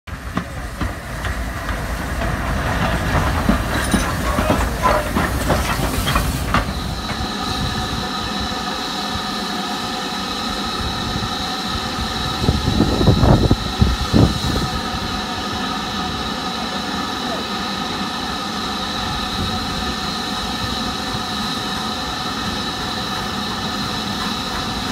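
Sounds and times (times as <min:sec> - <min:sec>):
distant steam train approaching: 0:00.1 - 0:24.9
steam hissing: 0:00.1 - 0:24.9
wheels clattering over rails: 0:00.2 - 0:07.2.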